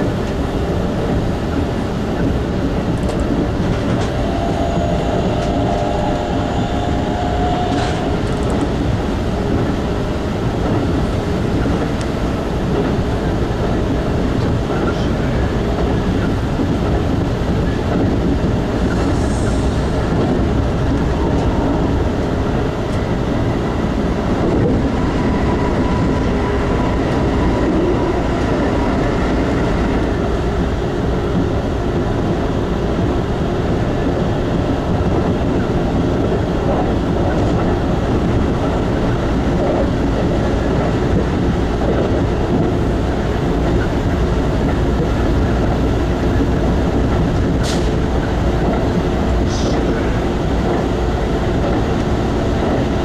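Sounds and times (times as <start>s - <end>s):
train wheels rumbling on rail: 0.0s - 53.0s
faint whining tones: 3.8s - 8.9s.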